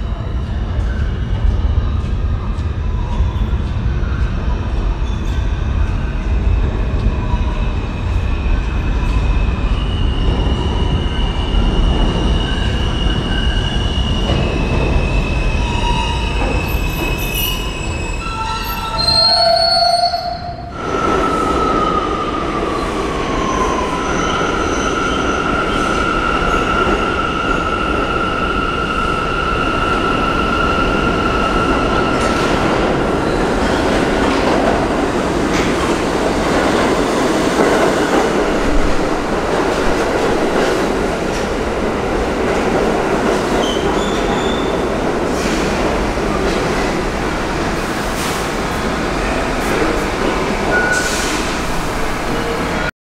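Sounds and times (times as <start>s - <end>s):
train rumble and clatter: 0.0s - 52.9s
train wheel squeal: 7.2s - 22.1s, 43.6s - 44.8s, 50.7s - 51.6s.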